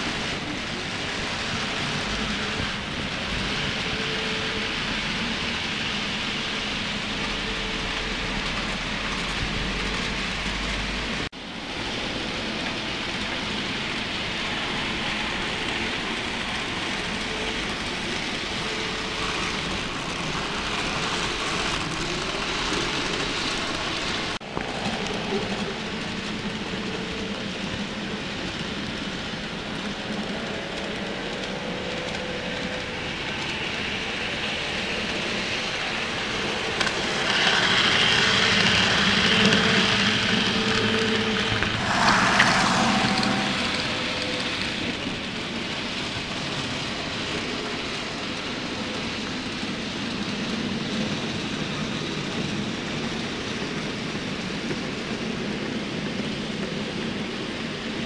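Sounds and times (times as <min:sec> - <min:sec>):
model train wheels whirring: 0:12.2 - 0:58.0.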